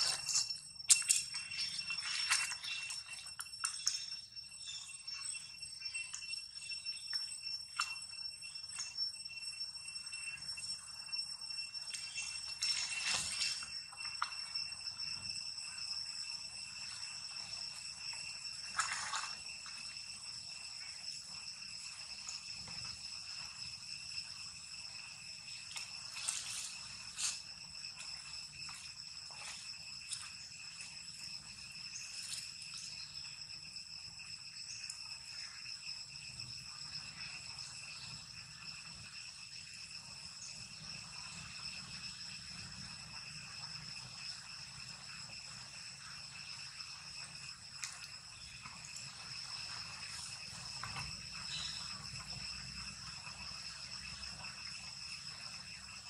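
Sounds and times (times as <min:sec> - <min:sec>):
insect chorus ringing: 0:00.0 - 0:56.0.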